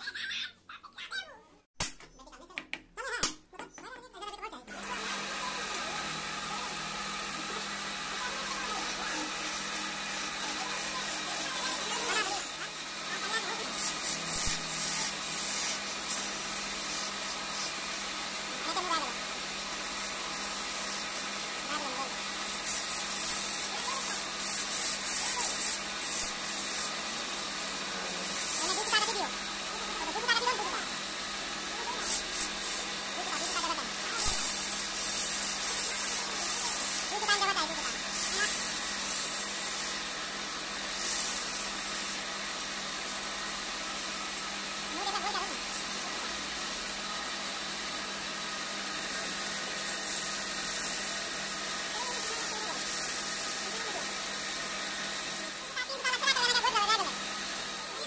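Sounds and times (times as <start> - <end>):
lathe motor hum: 4.8 - 45.0
chisel hissing on spinning wood: 5.2 - 58.0.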